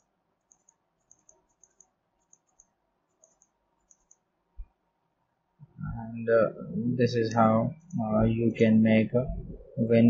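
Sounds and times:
computer mouse clicks: 0:00.0 - 0:04.7.

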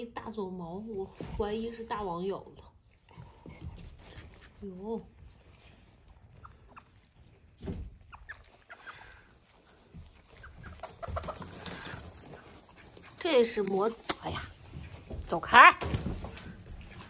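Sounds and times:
chickens clucking: 0:05.4 - 0:15.3, 0:15.9 - 0:17.0.

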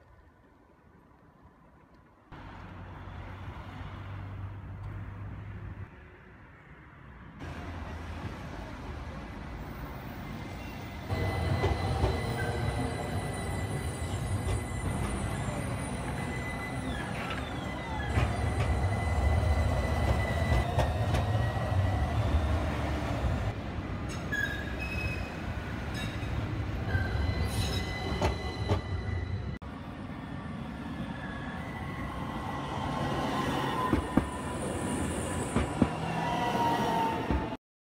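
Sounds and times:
tram wheels rumbling on rails: 0:07.4 - 0:37.6.

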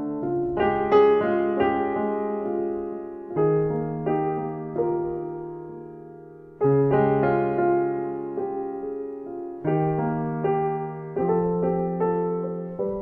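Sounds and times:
slow solo piano chords: 0:00.0 - 0:13.0.

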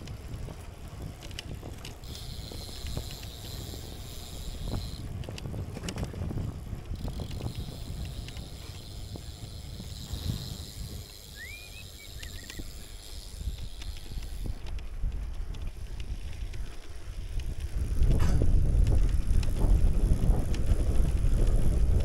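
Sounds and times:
bicycle road rumble: 0:00.0 - 0:22.0
wind noise on microphone: 0:00.0 - 0:22.0
short rising chirp: 0:11.3 - 0:12.6.

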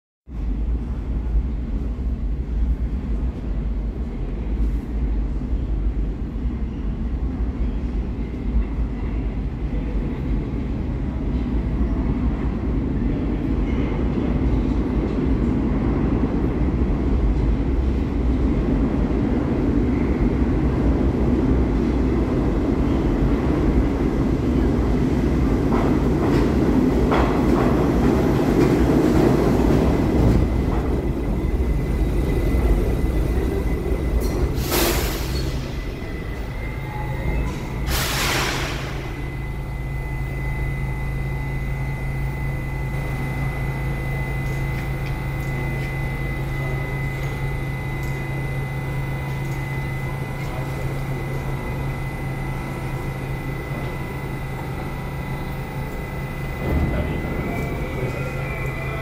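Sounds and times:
subway train rumbling: 0:00.3 - 0:59.0.

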